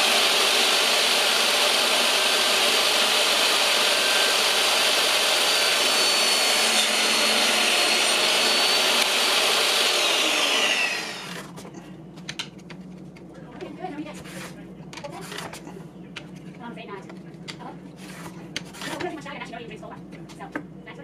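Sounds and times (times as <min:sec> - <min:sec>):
saw motor running down: 0:00.0 - 0:11.4
table saw ripping a board: 0:00.0 - 0:11.5.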